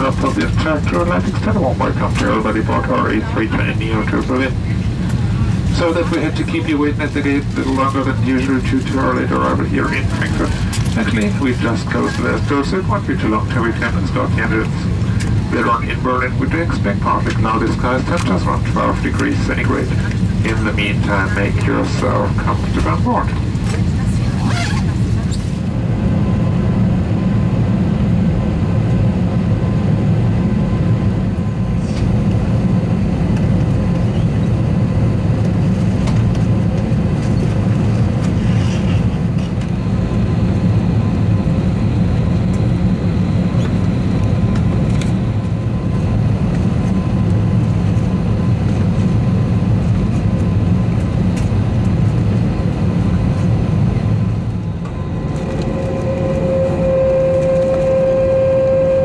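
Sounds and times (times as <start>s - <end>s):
aircraft cabin hum: 0.0s - 59.0s
thin whistle-like tone: 55.7s - 59.0s.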